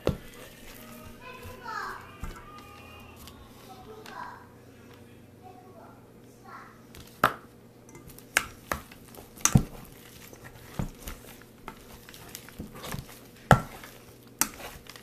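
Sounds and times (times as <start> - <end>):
plastic spoon clacking on metal bowl: 7.2 - 15.0.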